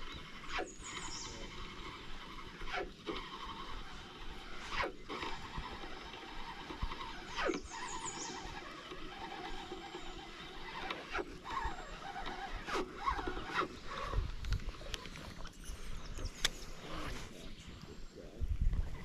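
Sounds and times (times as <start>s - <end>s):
fishing rod swishes: 4.5s - 5.4s.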